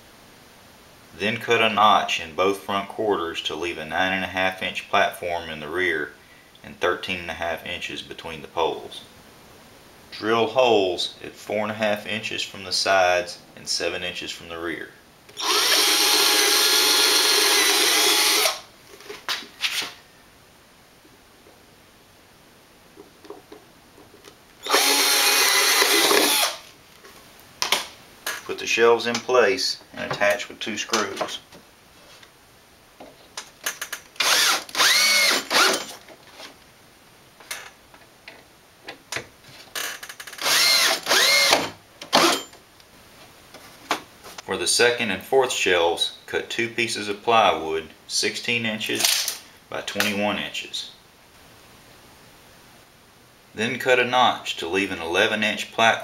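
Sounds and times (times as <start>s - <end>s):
cordless drill whining: 15.4s - 18.6s, 24.6s - 26.6s, 34.2s - 35.9s, 39.8s - 42.4s.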